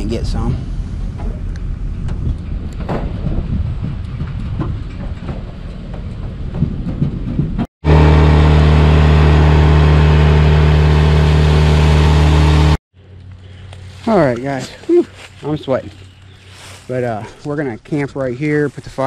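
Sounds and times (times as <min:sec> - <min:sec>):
boat trailer rumbling and rattling: 0:00.0 - 0:12.8
outboard motor running: 0:07.8 - 0:12.8.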